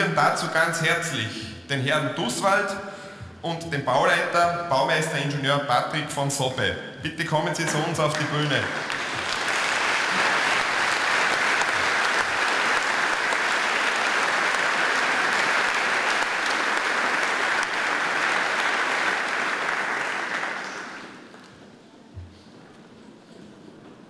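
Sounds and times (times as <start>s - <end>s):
audience applauding: 7.8s - 21.6s.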